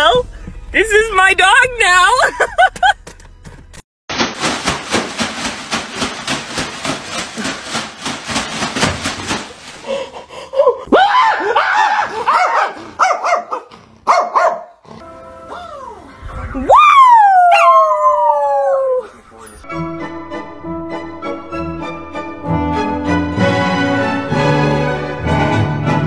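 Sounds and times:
plastic bag rustling: 4.3 - 10.3
small dog barking rapidly: 12.3 - 14.8.

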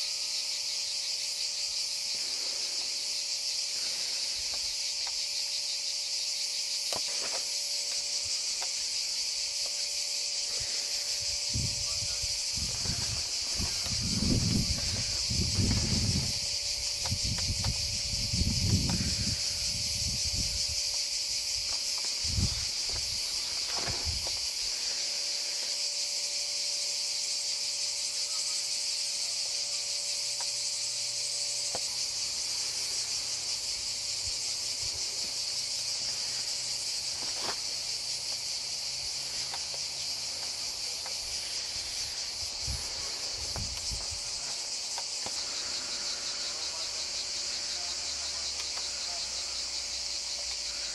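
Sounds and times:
cicadas chorus: 0.0 - 50.9
wind bumps on microphone: 11.5 - 20.8, 22.2 - 23.2.

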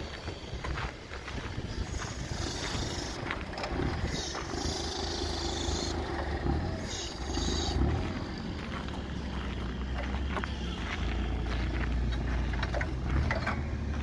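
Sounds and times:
forklift engine humming: 0.0 - 14.0
high hiss: 1.7 - 3.3.

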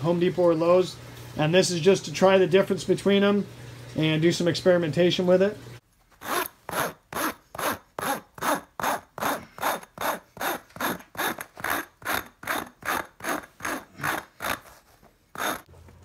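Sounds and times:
hole saw scratching plastic mesh: 6.1 - 15.7.

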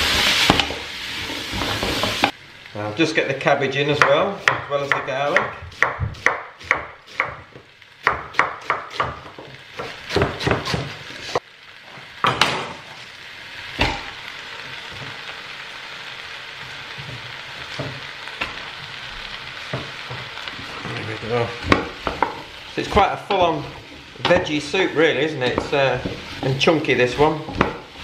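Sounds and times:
vegetables sizzling in oil: 0.0 - 28.0
knife chopping cabbage on board: 8.1 - 10.9.

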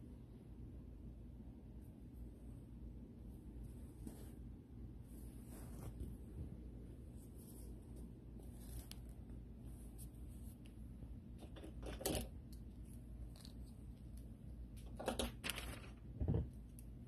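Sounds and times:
low steady hum: 0.0 - 17.0
hand rustling against cloth doll: 3.4 - 11.4.

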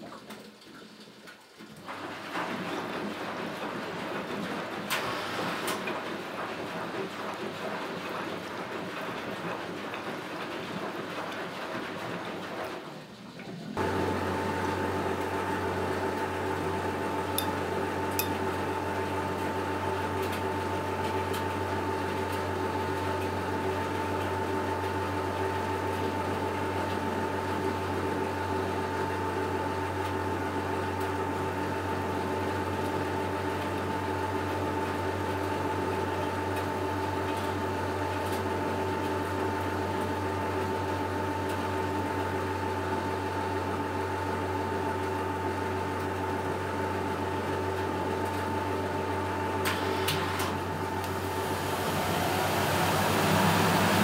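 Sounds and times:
washing machine motor humming: 1.6 - 54.0.

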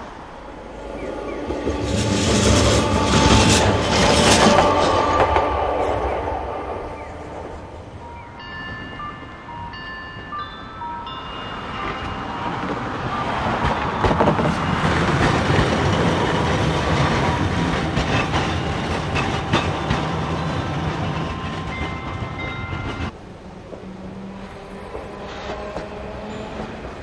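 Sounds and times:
streetcar passing: 0.0 - 27.0
wheels clicking over rail joints: 10.1 - 23.8.

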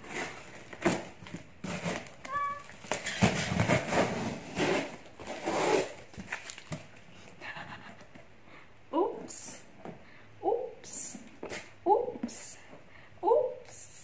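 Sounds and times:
tape and cardboard ripping: 0.1 - 6.8.

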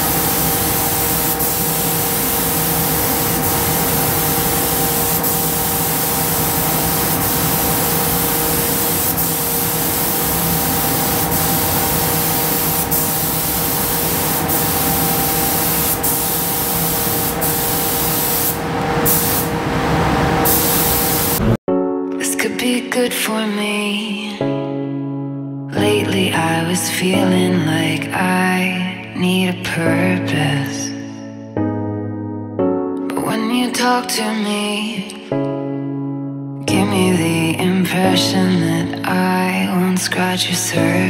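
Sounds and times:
spray gun hissing: 0.0 - 19.6, 20.4 - 21.6.

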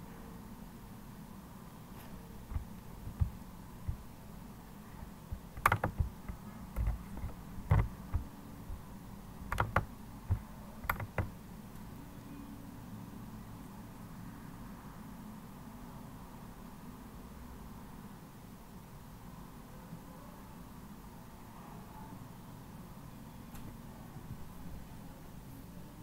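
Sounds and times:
keyboard keys tapping: 2.4 - 4.1, 5.0 - 8.8, 9.4 - 11.3.

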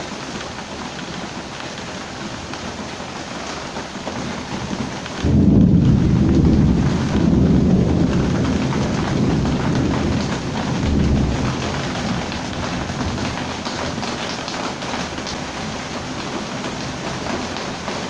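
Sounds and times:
heavy rain falling: 0.0 - 18.0
thunder rumbling: 5.2 - 18.0.

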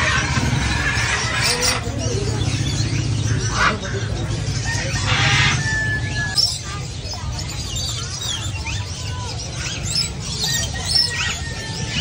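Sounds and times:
caged birds chirping: 0.0 - 12.0
whistling bird notes: 4.7 - 12.0.

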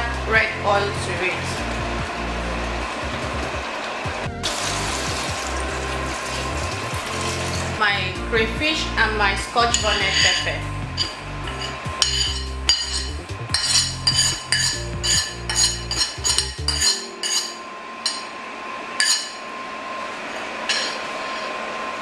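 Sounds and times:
metal spoon scraping on a plate: 9.7 - 18.3, 19.0 - 19.4, 20.7 - 21.5.

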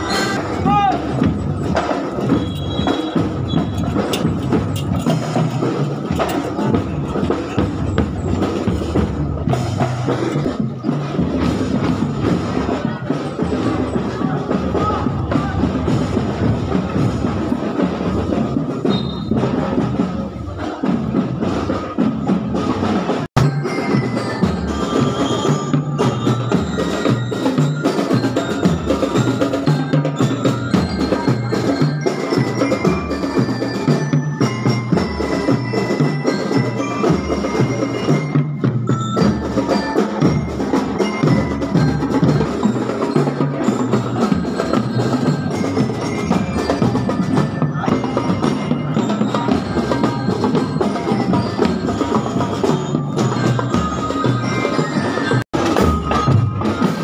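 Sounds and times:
bell-lyres ringing a march tune: 0.0 - 57.0
regular drum beat: 0.0 - 57.0.

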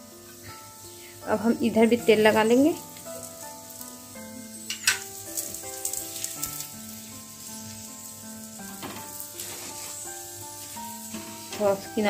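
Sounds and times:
flatbread sizzling in oil: 0.0 - 12.0
soft instrumental music: 0.0 - 12.0
metal spatula scraping a pan: 8.7 - 11.8.

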